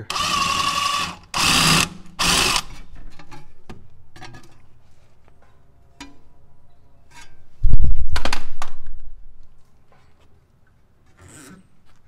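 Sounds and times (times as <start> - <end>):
power tool spinning nut: 0.1 - 2.7.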